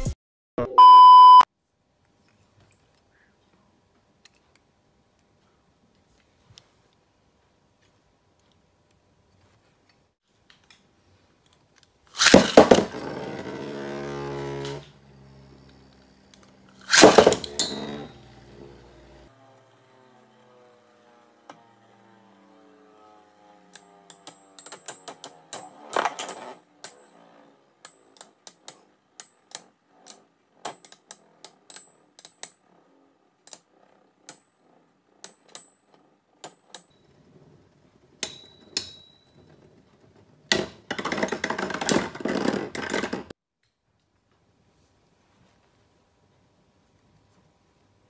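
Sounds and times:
spinning tops clashing clicks: 12.1s - 13.2s, 16.7s - 18.2s.

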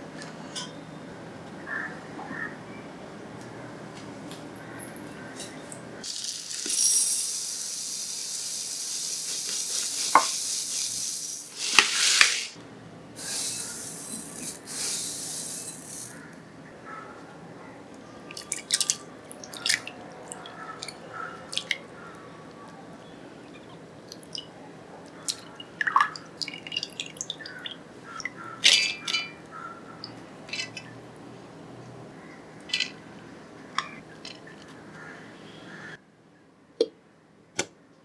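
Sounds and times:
wet lentils into steel jar: 6.0s - 12.5s, 13.2s - 16.2s
water dripping: 18.3s - 21.8s, 24.0s - 24.5s, 25.1s - 28.4s.

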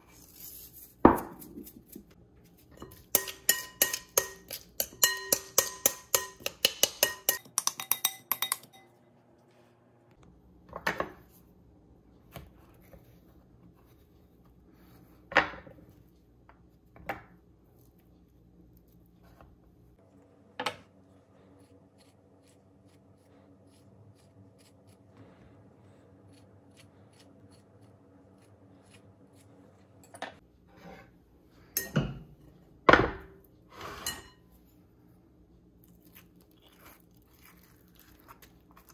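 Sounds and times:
stirring clinking in glass bowl: 2.7s - 9.0s
spoon knocking glass bowl: 3.2s - 8.9s.

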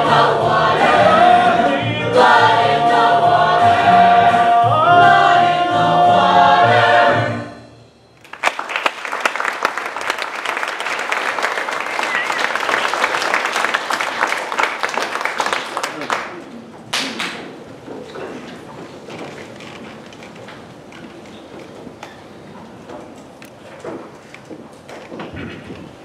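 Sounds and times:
audience applause: 8.2s - 17.6s.

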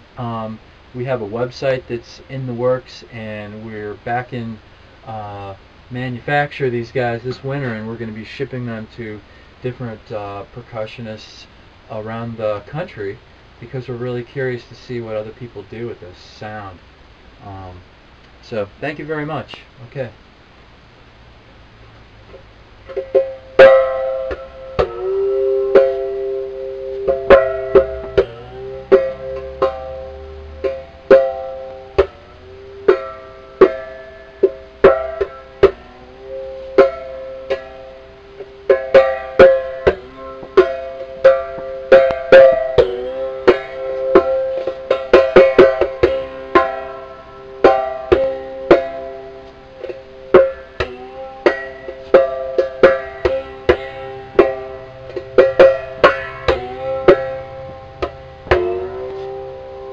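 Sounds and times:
twangy struck string instrument: 22.3s - 59.9s.

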